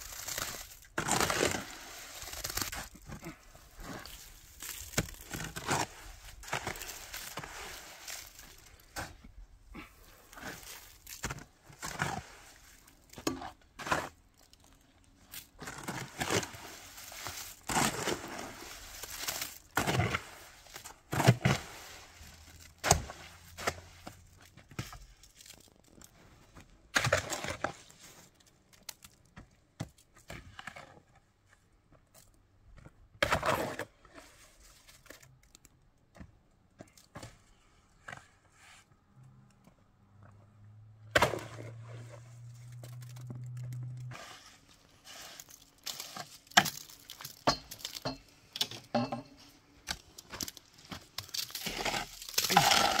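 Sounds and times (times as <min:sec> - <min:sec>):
crackling and tearing noises: 0:00.0 - 0:21.1, 0:21.9 - 0:29.4, 0:34.5 - 0:36.0, 0:41.9 - 0:48.0, 0:49.8 - 0:53.0.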